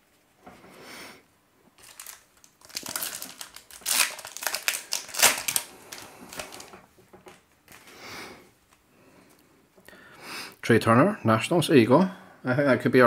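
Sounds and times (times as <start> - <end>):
wrapper tearing and crinkling: 1.8 - 7.9.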